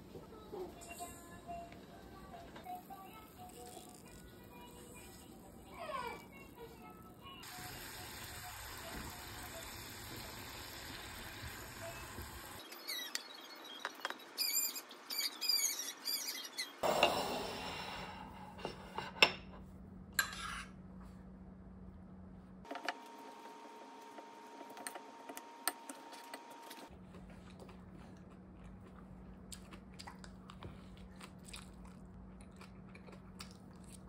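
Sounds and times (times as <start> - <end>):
high squeaks: 12.6 - 16.8.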